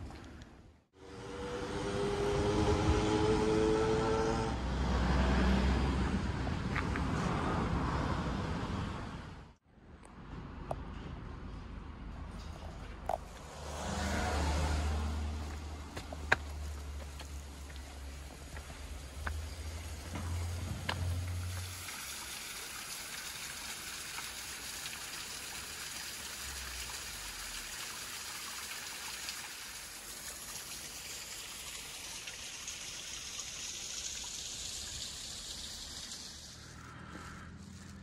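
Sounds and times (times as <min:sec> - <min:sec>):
small waterfall splashing into pool: 0:16.2 - 0:36.8.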